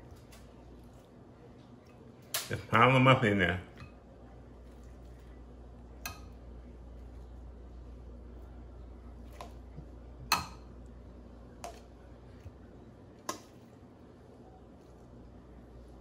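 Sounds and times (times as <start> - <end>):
faint low hum: 0.0 - 16.0
tongs clicking on metal bowl: 6.0 - 6.4.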